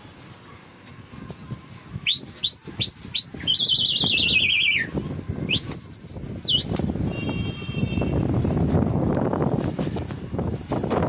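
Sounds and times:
cloth flags flapping: 6.3s - 11.0s.

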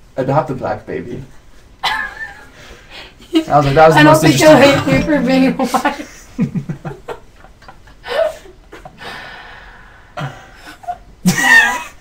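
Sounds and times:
man and woman laughing quietly: 1.8s - 2.7s, 10.2s - 12.0s.

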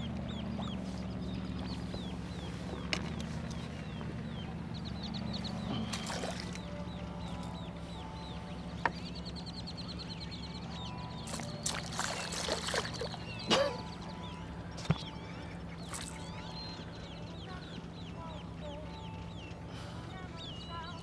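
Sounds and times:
steady low hum: 0.0s - 21.0s
fish splashing at the surface: 5.9s - 6.6s, 11.3s - 13.2s, 15.9s - 16.2s.

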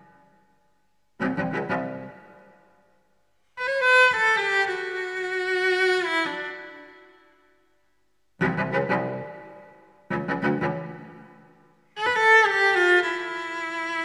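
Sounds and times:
bowed string music: 1.2s - 2.8s, 3.6s - 7.1s, 8.4s - 14.0s.

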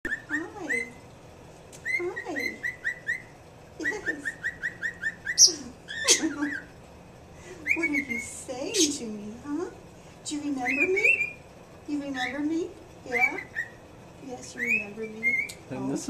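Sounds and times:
cockatiel chirping: 0.1s - 1.0s, 1.8s - 6.8s, 7.6s - 9.0s, 10.5s - 11.4s, 13.1s - 13.8s, 14.4s - 15.6s.

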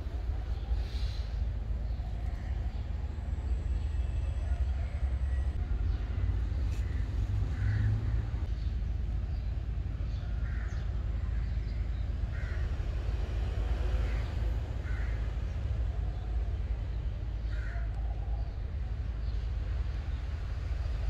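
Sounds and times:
crow cawing: 6.8s - 8.0s, 10.4s - 10.8s, 12.3s - 12.6s, 14.0s - 15.2s, 17.5s - 17.9s.

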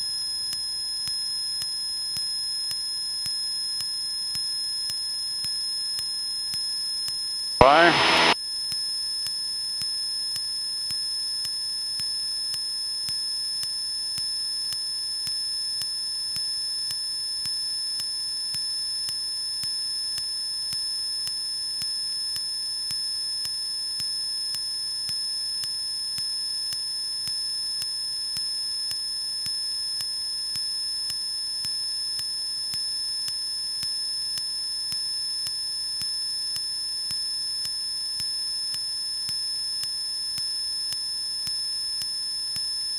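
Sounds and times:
high-pitched electrical whine: 7.6s - 8.4s.

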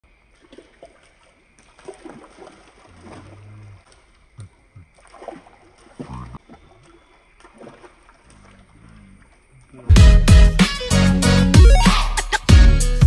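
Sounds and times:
water sloshing and splashing: 0.0s - 9.9s.

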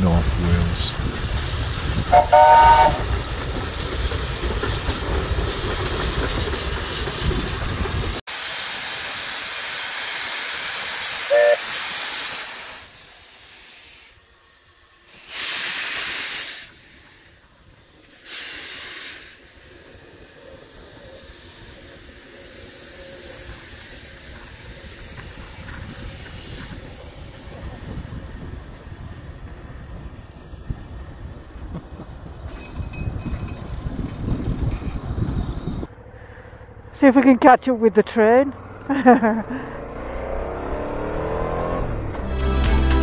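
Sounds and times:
steam bursts: 0.0s - 32.3s
steam locomotive hissing: 0.0s - 35.9s
steam whistle toot: 2.1s - 3.1s, 11.2s - 11.8s.

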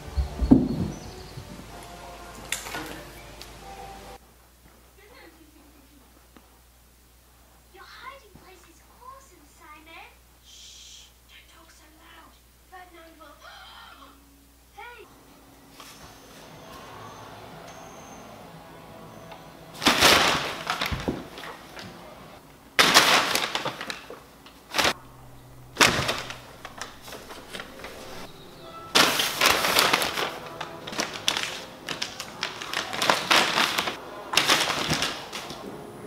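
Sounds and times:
paper crackling and rustling: 19.8s - 22.1s, 22.8s - 35.8s.

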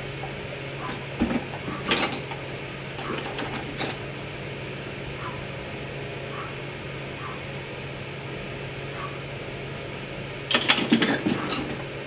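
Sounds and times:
workshop room hum and hiss: 0.0s - 12.0s.

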